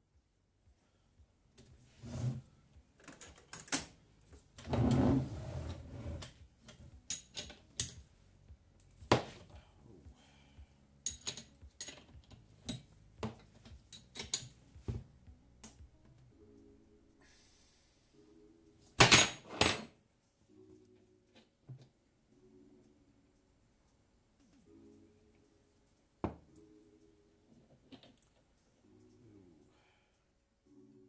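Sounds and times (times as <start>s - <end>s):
metallic clicks of hand tools: 3.0s - 4.0s, 6.7s - 8.0s, 11.0s - 12.9s, 13.8s - 14.6s.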